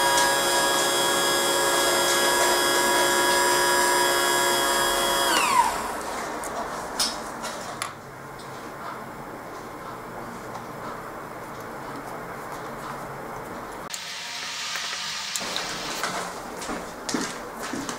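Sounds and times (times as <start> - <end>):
wiper motor whining: 0.0 - 6.6.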